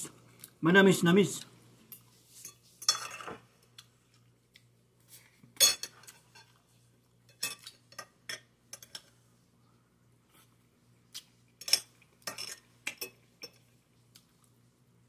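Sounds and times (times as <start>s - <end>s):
cutlery clinking on glass plate: 1.9s - 3.9s, 5.6s - 6.6s, 7.3s - 9.1s, 11.6s - 13.7s.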